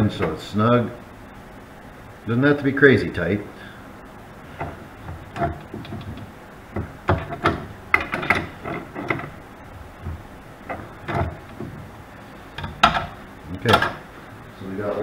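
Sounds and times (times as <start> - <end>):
metal clicks and clanks: 4.6 - 9.4, 10.0 - 11.9, 12.5 - 14.0.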